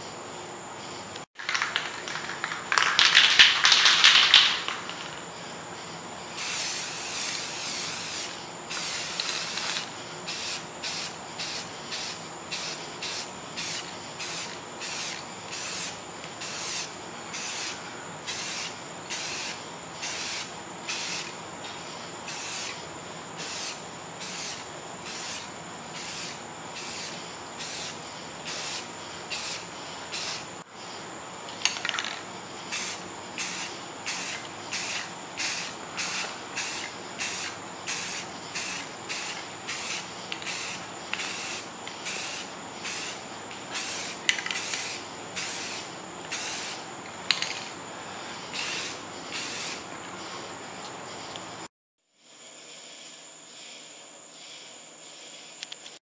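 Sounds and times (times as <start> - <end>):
airbrush spraying hiss: 6.4 - 30.7, 32.6 - 46.9, 48.4 - 50.3.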